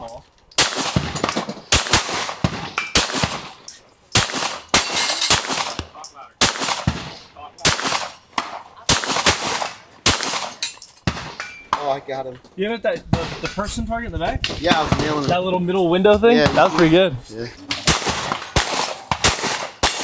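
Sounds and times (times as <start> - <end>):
pistol shots: 0.6 - 11.8, 17.7 - 20.0.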